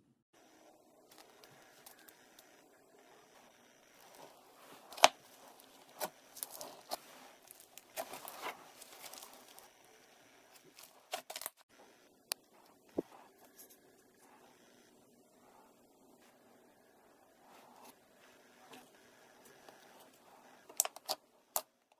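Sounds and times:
slime popping and crackling: 4.0 - 9.7, 10.6 - 11.6.

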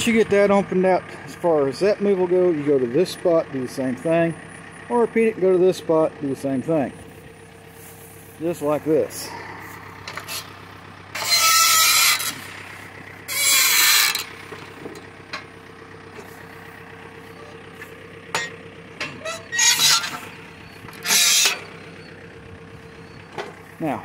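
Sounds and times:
tractor engine idling: 0.0 - 24.0
rasping metal scrapes: 9.6 - 15.0, 18.4 - 21.8.

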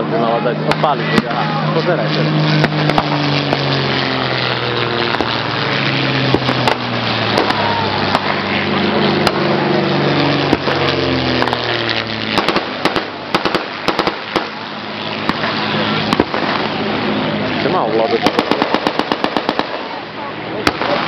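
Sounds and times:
engine rising and falling in pitch: 0.0 - 21.0
blank gunshots: 12.3 - 14.5, 18.2 - 19.9.

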